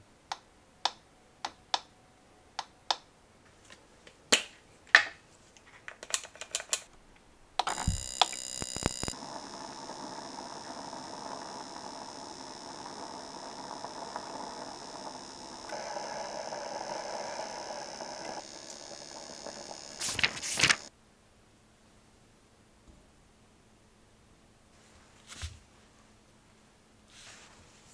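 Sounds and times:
facial steamer hissing: 7.6s - 20.9s.

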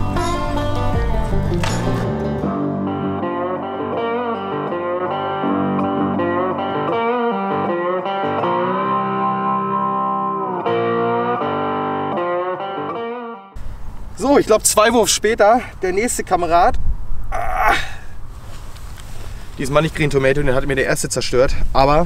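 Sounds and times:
electric guitar background music: 0.0s - 13.6s.

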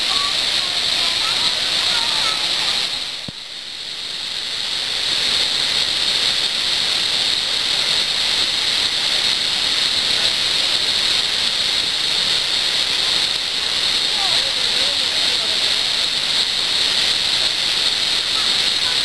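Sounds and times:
rushing floodwater: 0.0s - 19.0s.

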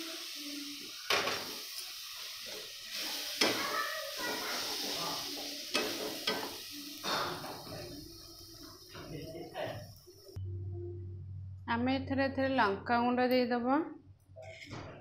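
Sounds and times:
tomato sizzling in hot oil: 0.0s - 10.4s.

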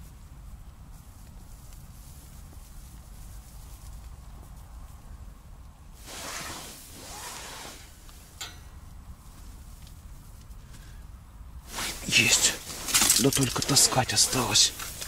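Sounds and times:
clothing rustling: 6.0s - 8.0s, 11.6s - 15.0s.

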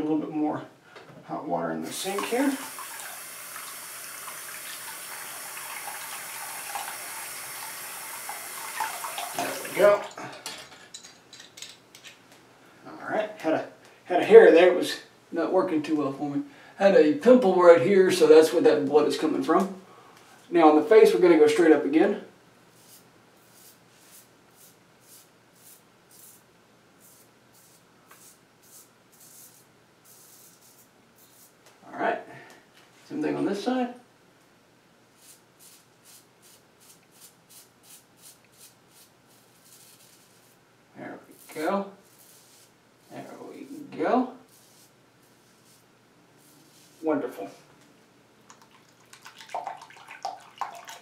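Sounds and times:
tap water running into basin: 2.0s - 10.1s, 48.5s - 51.0s.

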